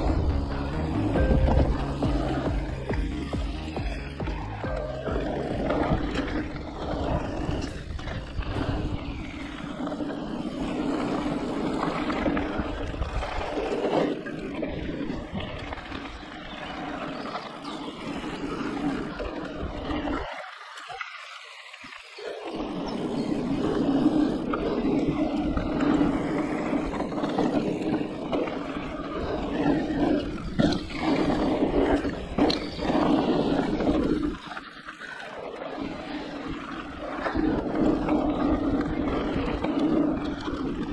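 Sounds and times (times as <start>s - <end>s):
wind rumble on microphone: 0.0s - 16.4s, 35.7s - 40.9s
bike rattling over bumps: 0.0s - 20.4s, 22.4s - 40.9s
tyres rolling over dirt: 0.0s - 20.7s, 22.2s - 40.9s.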